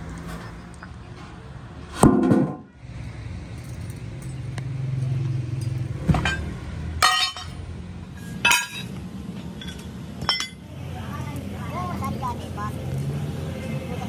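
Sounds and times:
steel pieces clanking onto pile: 5.6s - 7.6s, 8.2s - 9.0s, 9.6s - 10.6s.

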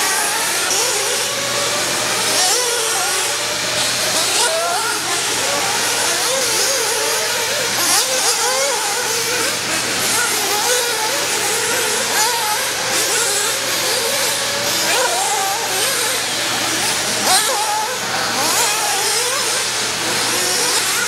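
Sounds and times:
rc car motors whining: 0.0s - 21.0s.

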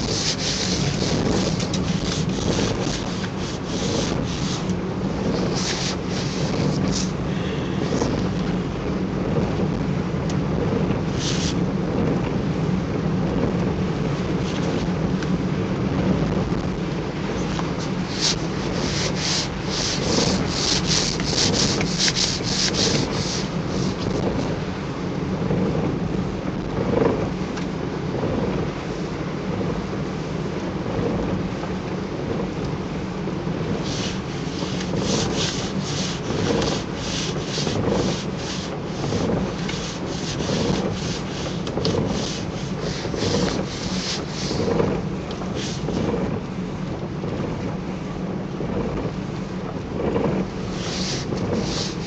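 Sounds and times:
rain suit rustling: 0.0s - 8.4s, 17.3s - 24.5s, 33.8s - 46.3s, 50.4s - 52.0s
car cabin hum: 0.0s - 52.0s.

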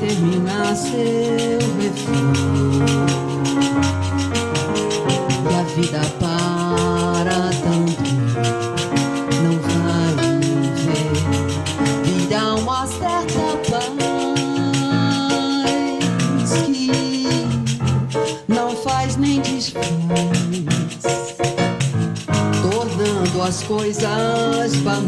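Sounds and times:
woman singing: 0.0s - 3.6s, 5.4s - 8.3s, 9.2s - 21.5s, 22.5s - 25.0s
electronic keyboard chords: 0.0s - 25.0s
steady percussion beat: 0.0s - 25.0s.

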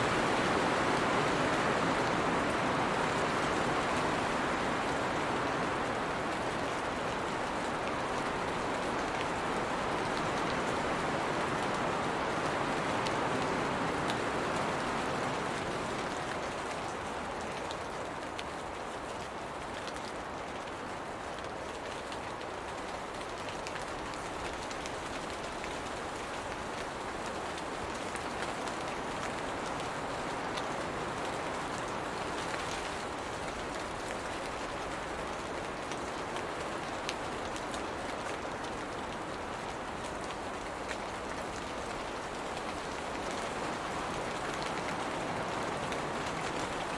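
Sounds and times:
rain falling on leafy plants: 0.0s - 46.9s.

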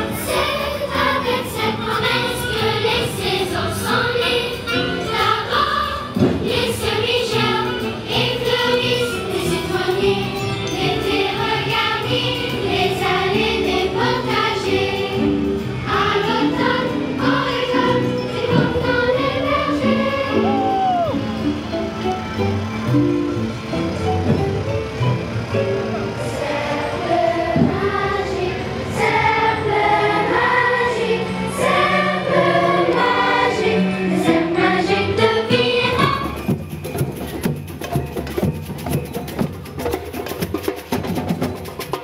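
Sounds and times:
children's choir singing: 0.0s - 22.4s, 25.6s - 36.7s
instrumental backing music: 0.0s - 42.0s.

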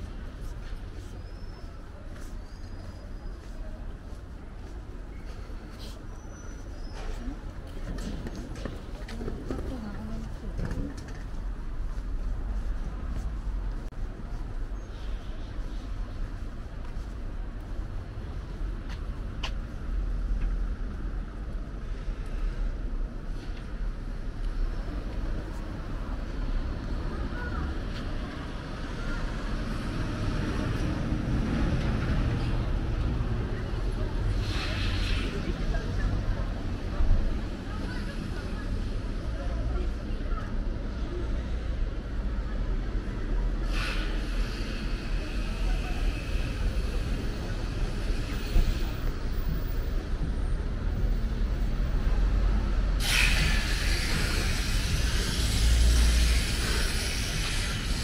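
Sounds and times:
road traffic rumble: 0.0s - 58.0s
loud rushing noise: 49.9s - 58.0s.

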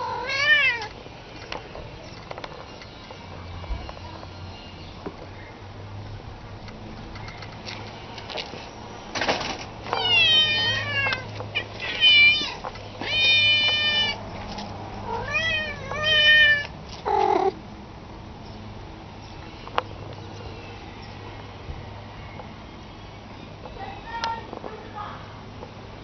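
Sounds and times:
cat meowing: 0.0s - 0.9s, 10.0s - 14.2s, 15.0s - 17.6s.

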